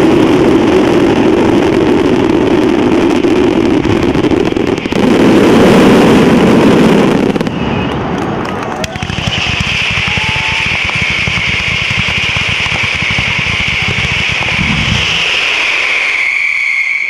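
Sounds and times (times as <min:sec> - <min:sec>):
firecrackers crackling: 0:00.0 - 0:17.0
loud high hiss: 0:09.2 - 0:17.0.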